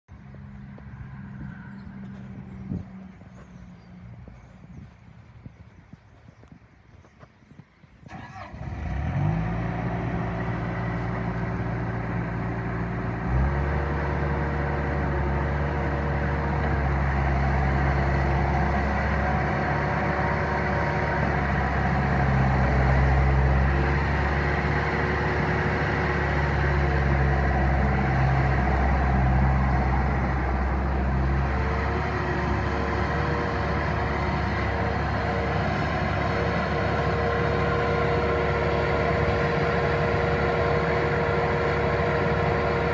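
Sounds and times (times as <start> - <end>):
loader diesel engine revving: 8.1 - 42.9.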